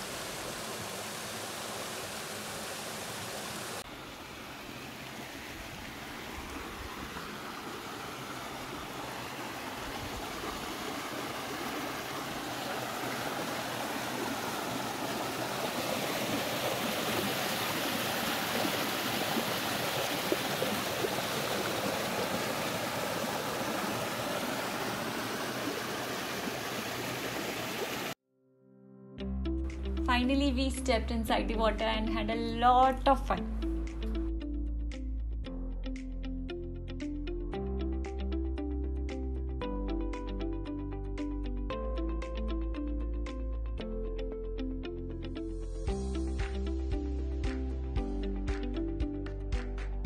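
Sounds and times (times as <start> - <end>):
stream rushing over rocks: 0.0 - 28.2.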